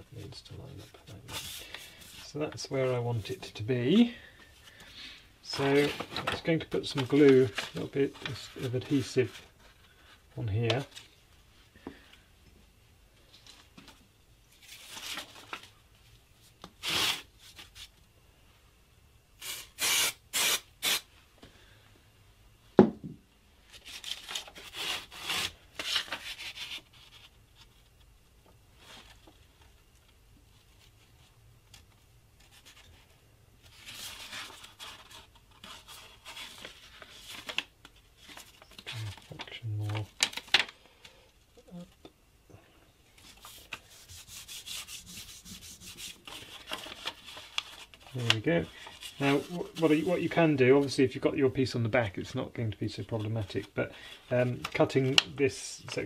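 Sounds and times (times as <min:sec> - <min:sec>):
paper rustling and rubbing: 0:00.2 - 0:02.4, 0:05.5 - 0:11.1, 0:14.5 - 0:15.8, 0:23.7 - 0:28.0, 0:32.4 - 0:40.7, 0:43.2 - 0:51.0.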